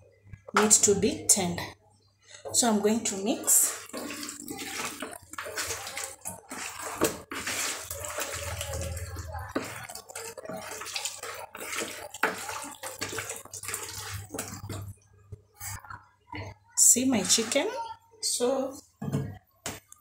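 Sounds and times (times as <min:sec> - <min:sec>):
wet squishing and sloshing: 0:03.4 - 0:15.8.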